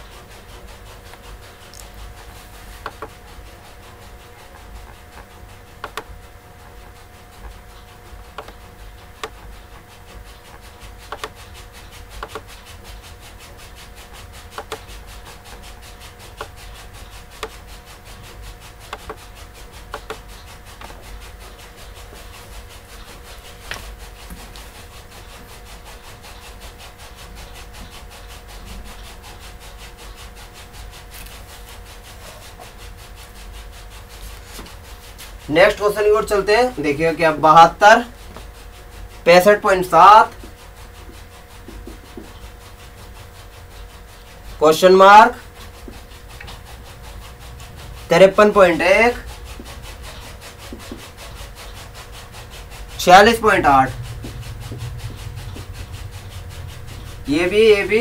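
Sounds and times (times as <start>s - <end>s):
electrical hum: 0.0s - 58.0s
low rumble: 52.4s - 58.0s.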